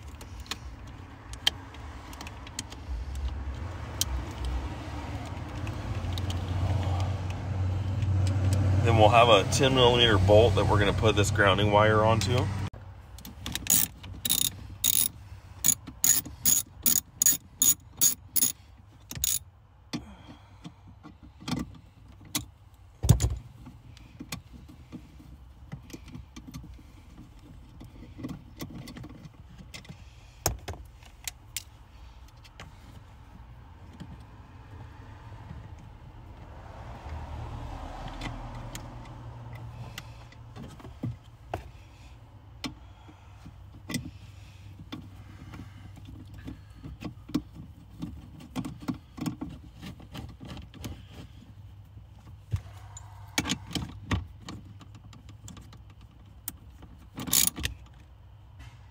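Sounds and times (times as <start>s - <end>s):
socket ratchet clicking: 13.5s - 19.4s.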